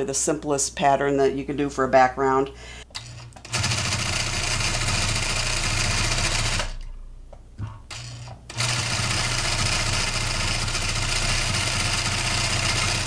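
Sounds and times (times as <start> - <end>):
quilting machine stitching: 3.0 - 6.8, 7.9 - 13.0.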